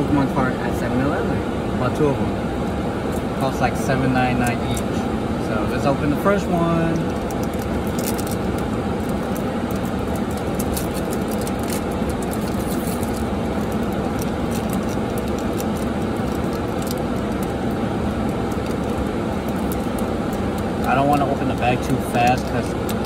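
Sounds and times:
car cabin running noise: 0:00.0 - 0:23.0
foil wrapper crinkling and tearing: 0:06.9 - 0:23.0.

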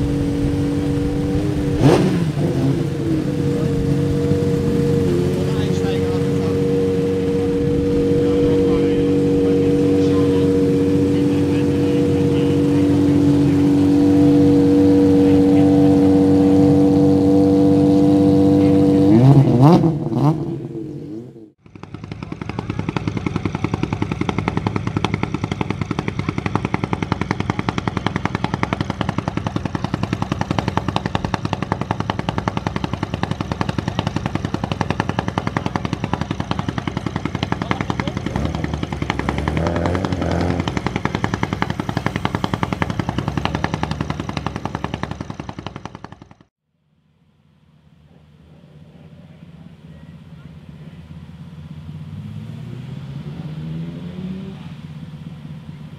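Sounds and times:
rally car engine idling and revving: 0:00.0 - 0:46.5, 0:47.6 - 0:55.9
engine idling with popping rattle: 0:21.6 - 0:46.5.

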